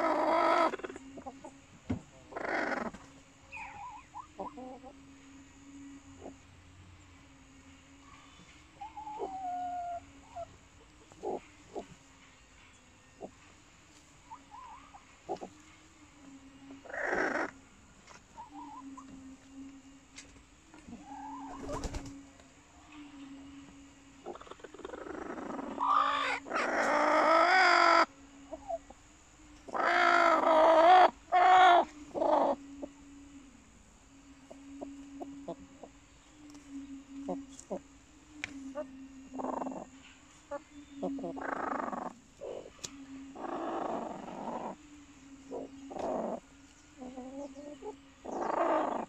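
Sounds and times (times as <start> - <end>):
hens clucking: 0.0 - 4.9, 8.4 - 12.1, 13.2 - 15.6, 20.7 - 22.1, 24.2 - 28.9, 29.7 - 32.9, 38.7 - 44.8, 47.0 - 49.0
faint steady hum: 0.0 - 49.0
hen drawn-out call: 2.3 - 4.9, 16.8 - 17.6, 24.2 - 28.8, 29.7 - 32.6.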